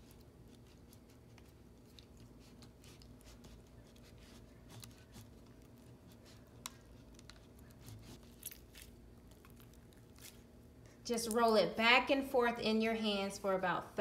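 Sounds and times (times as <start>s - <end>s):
sticky slime squishing: 0.0s - 10.6s.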